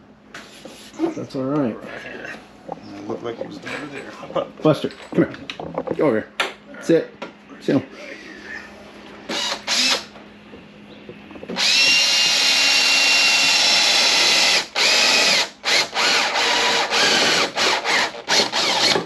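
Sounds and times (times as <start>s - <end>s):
power drill whining: 9.3s - 10.1s, 11.5s - 19.0s.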